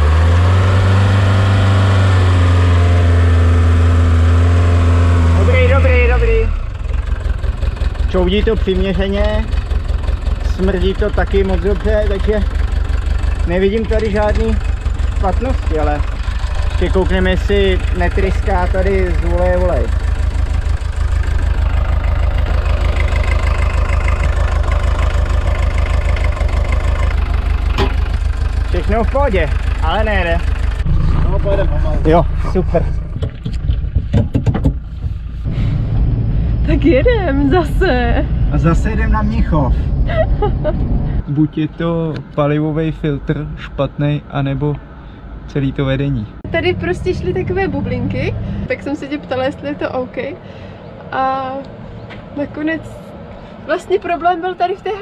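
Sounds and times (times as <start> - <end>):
van engine running at high revs: 0.0 - 55.0.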